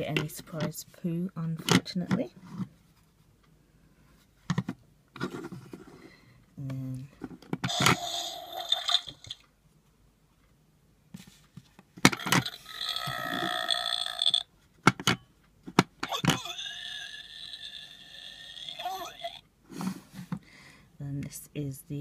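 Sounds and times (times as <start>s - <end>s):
toy electronic gross sound effects: 7.6s - 9.4s, 12.1s - 14.5s, 16.0s - 19.4s.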